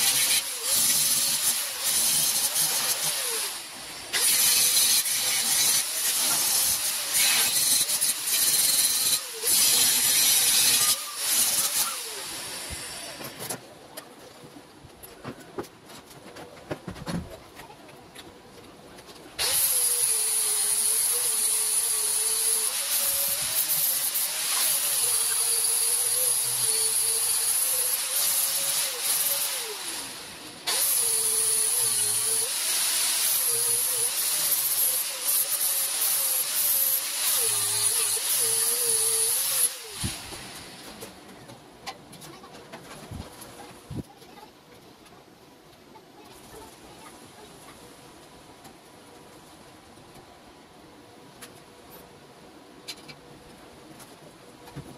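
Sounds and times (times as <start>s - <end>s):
angle grinder grinding metal: 0.0s - 13.4s, 19.4s - 41.1s.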